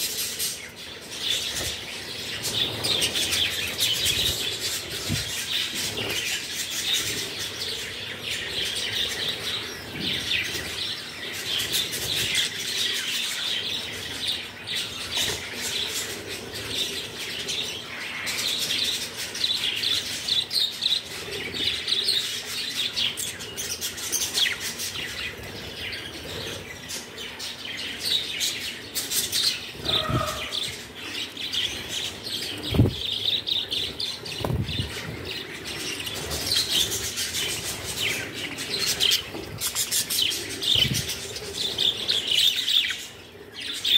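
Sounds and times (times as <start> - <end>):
budgerigars chirping: 29.4 - 31.8
wings flapping: 34.2 - 35.2.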